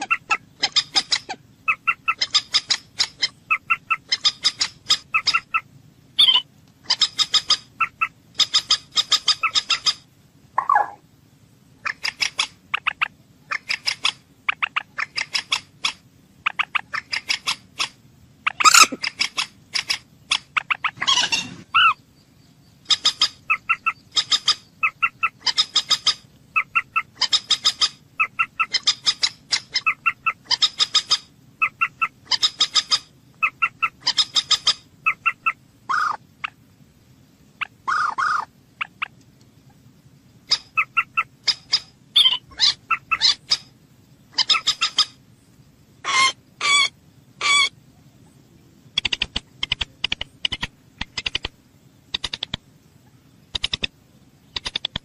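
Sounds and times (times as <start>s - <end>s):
harsh bird calls: 0.0s - 11.0s, 11.8s - 36.6s, 37.6s - 39.2s, 40.4s - 45.3s, 46.0s - 48.4s
moorhen clucking calls: 0.0s - 11.0s, 11.8s - 22.0s, 22.8s - 36.6s, 37.6s - 39.8s, 40.4s - 43.7s, 44.3s - 45.2s, 46.0s - 47.8s.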